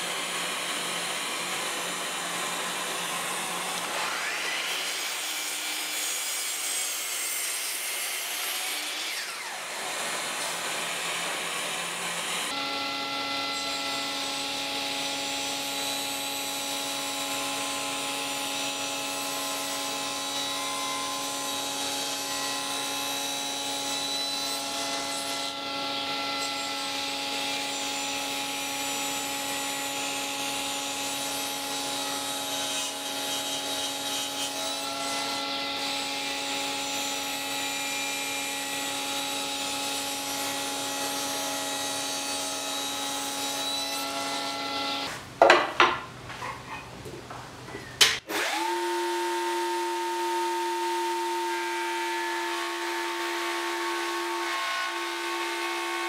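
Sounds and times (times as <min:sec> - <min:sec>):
saw blade cutting wood: 0:00.0 - 0:46.8, 0:48.0 - 0:56.0
table saw motor hum: 0:07.4 - 0:45.2.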